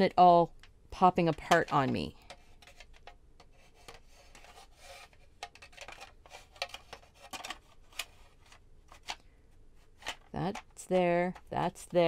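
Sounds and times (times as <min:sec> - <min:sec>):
plastic rubbing on plastic: 0:02.3 - 0:10.2
plastic parts clicking: 0:05.1 - 0:09.3.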